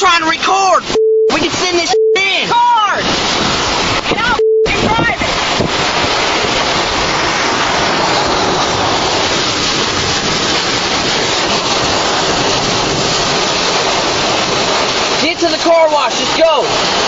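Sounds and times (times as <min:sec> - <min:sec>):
roaring tornado wind: 0:01.5 - 0:17.0.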